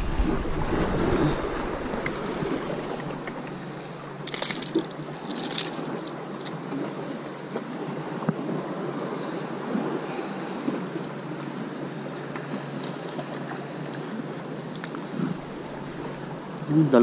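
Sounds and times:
wind on microphone: 0:00.0 - 0:04.7
surf washing against rocks: 0:00.0 - 0:17.0.

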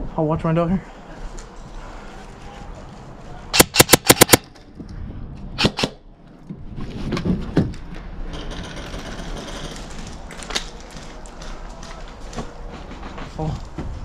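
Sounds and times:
sharp airsoft shots: 0:03.5 - 0:04.4, 0:05.6 - 0:06.0.

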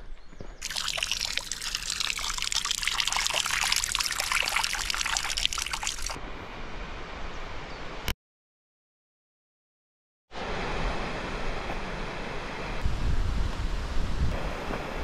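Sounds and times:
water trickling onto stones: 0:00.6 - 0:06.2.

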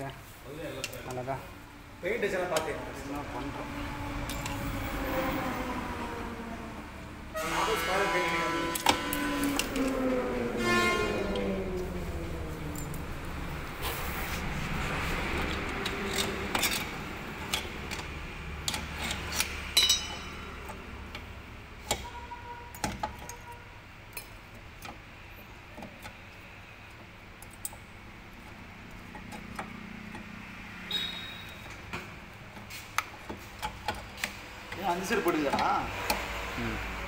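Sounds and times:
tools and springs clinking on metal: 0:04.2 - 0:04.7, 0:12.7 - 0:13.1, 0:15.3 - 0:36.3
ringing metallic clink: 0:19.8 - 0:20.5.

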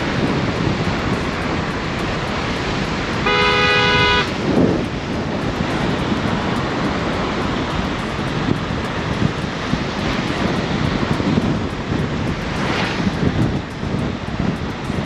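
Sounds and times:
tyres on wet road: 0:00.0 - 0:15.0
wind gust on microphone: 0:00.0 - 0:15.0
wind rushing: 0:00.0 - 0:15.0
car horn: 0:03.2 - 0:04.3.

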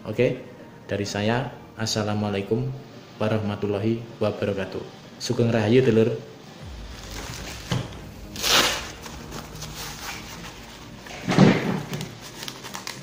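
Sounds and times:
heavy knock: 0:06.6 - 0:09.5
fabric swish: 0:07.0 - 0:11.4.

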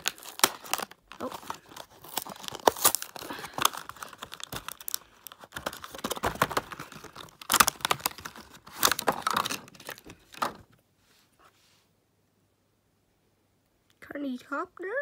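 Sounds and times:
plastic packaging tearing and crinkling: 0:00.0 - 0:10.7.

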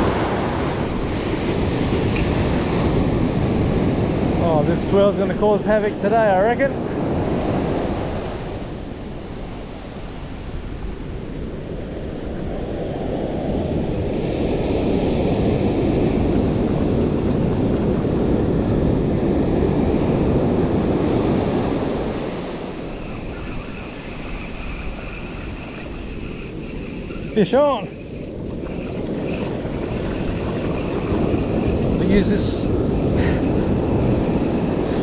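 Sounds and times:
ocean surf breaking: 0:00.0 - 0:35.0.

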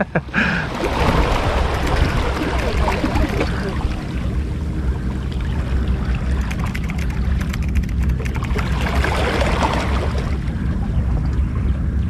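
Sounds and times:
wind buffeting microphone: 0:00.0 - 0:12.0
water lapping against rocks: 0:00.4 - 0:04.4
patter of faint ticks: 0:06.4 - 0:08.6.

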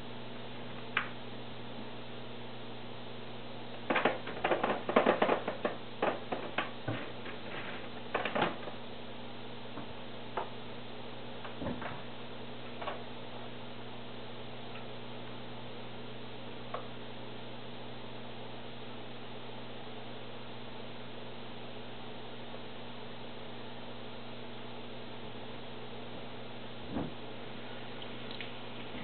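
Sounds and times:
steady low hum: 0:00.0 - 0:29.0
plastic parts clicking and knocking: 0:03.9 - 0:07.4, 0:08.1 - 0:08.7.

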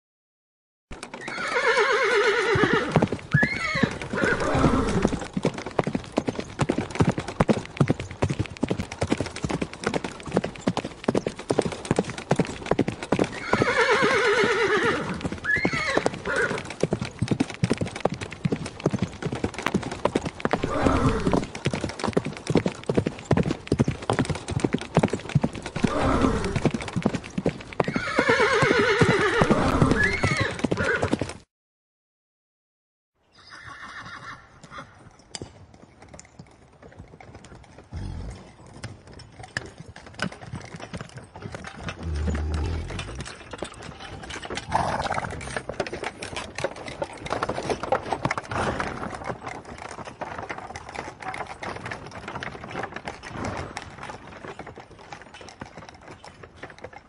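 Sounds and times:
horse hooves clip-clopping: 0:00.9 - 0:31.5, 0:33.5 - 0:57.0
horse whinnying: 0:01.1 - 0:05.3, 0:13.3 - 0:16.7, 0:20.5 - 0:21.5, 0:25.8 - 0:26.8, 0:27.8 - 0:31.2, 0:33.3 - 0:34.9, 0:37.9 - 0:38.6, 0:41.9 - 0:43.5, 0:44.6 - 0:45.6
cart rattling: 0:37.0 - 0:56.9.

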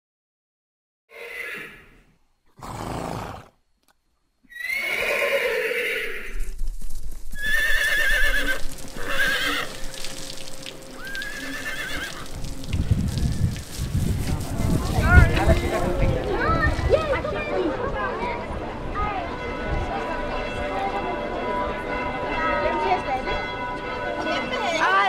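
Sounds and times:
horses whinnying: 0:01.1 - 0:03.6, 0:04.5 - 0:06.4, 0:07.4 - 0:09.8, 0:11.0 - 0:12.4.

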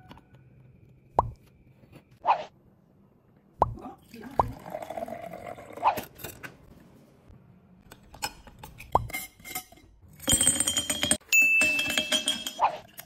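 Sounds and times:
glass clinks and knocks: 0:09.0 - 0:13.0.

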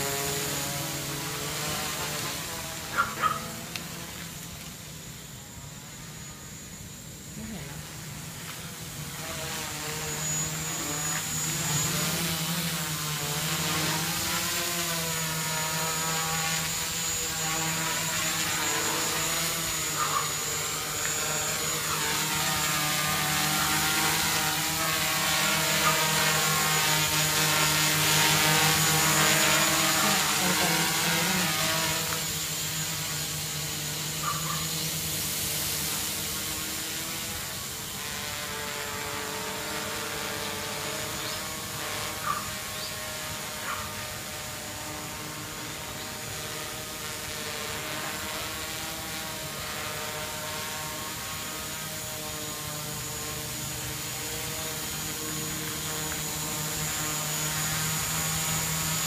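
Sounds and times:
drone propellers buzzing: 0:00.0 - 0:59.0.

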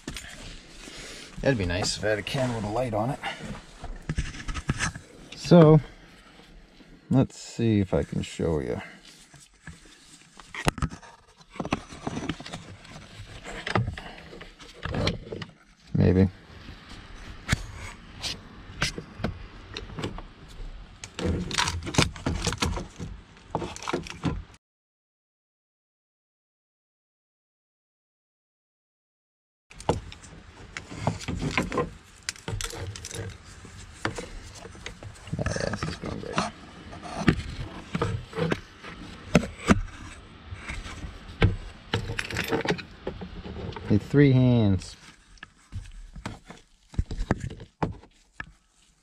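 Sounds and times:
scraping: 0:00.0 - 0:05.8
hand tools and plastic parts clicking: 0:29.7 - 0:33.4
plastic and metal parts rattling: 0:29.7 - 0:40.1.

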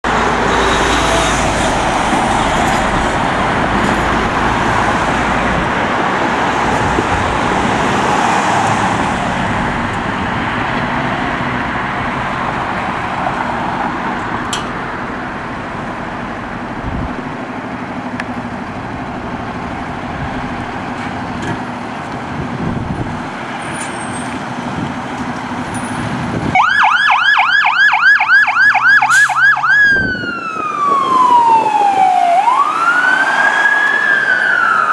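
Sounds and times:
fire engine running: 0:00.0 - 0:34.9
electronic siren yelp: 0:26.6 - 0:34.9.

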